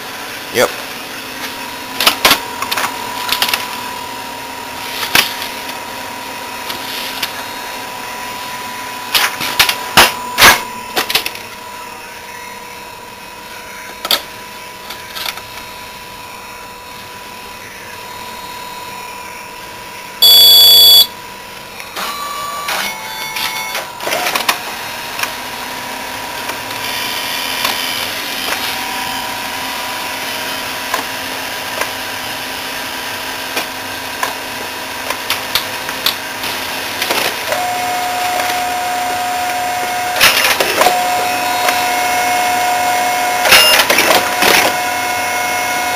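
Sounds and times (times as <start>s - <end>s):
copier high whine: 0.0s - 45.9s
loud electronic beep: 20.2s - 21.1s.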